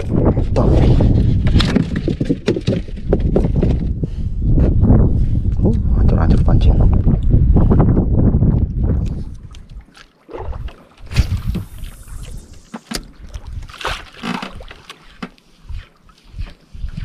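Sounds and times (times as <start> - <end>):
water slapping boat hull: 0.0 - 4.0, 8.5 - 17.0
wind gusts on microphone: 0.0 - 14.0, 15.6 - 17.0.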